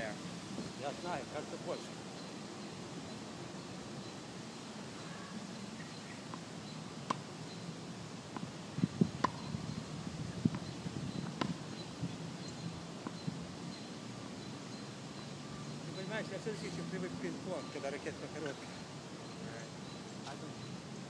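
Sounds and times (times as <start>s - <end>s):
outdoor background noise: 0.0s - 21.0s
tennis balls bouncing on hard court: 9.2s - 9.5s.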